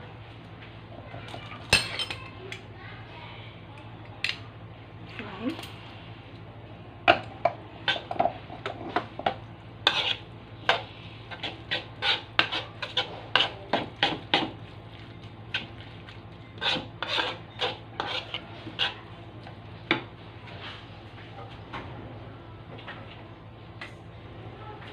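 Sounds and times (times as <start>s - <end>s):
metal spoon scraping wooden bowl: 9.8s - 14.2s, 16.6s - 19.0s.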